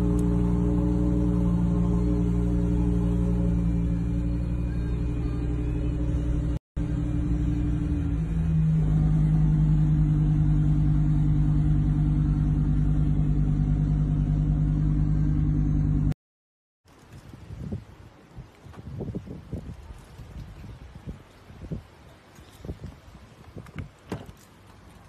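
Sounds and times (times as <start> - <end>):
car engine idling: 0.0 - 16.2.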